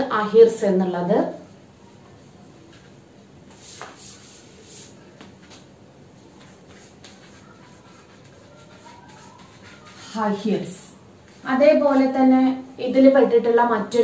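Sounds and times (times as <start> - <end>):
chalk scratching on blackboard: 3.5 - 5.0, 6.4 - 10.7
chalk tapping: 3.5 - 5.7, 6.4 - 10.4.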